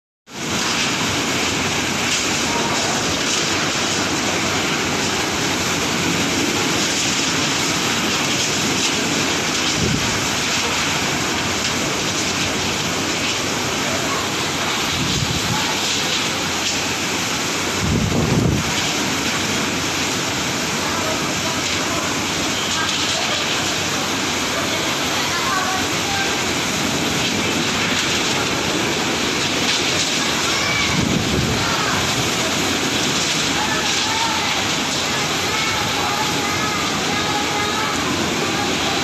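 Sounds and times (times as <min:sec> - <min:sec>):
wind-driven heavy rain: 0:00.3 - 0:39.0
wind gusts buffeting microphone: 0:05.9 - 0:11.1, 0:14.6 - 0:16.0, 0:17.6 - 0:19.3, 0:25.9 - 0:39.0.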